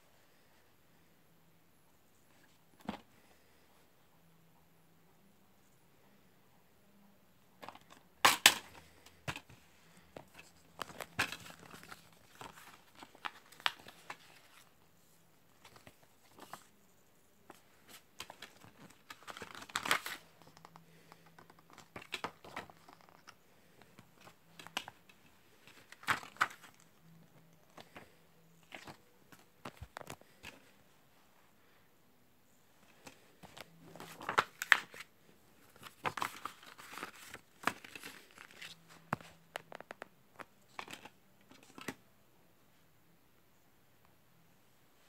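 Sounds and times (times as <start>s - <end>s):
plastic case crinkling and clicking: 7.6s - 14.4s, 18.2s - 30.7s
paper rustling: 8.3s - 14.7s, 17.5s - 26.9s, 33.0s - 39.9s.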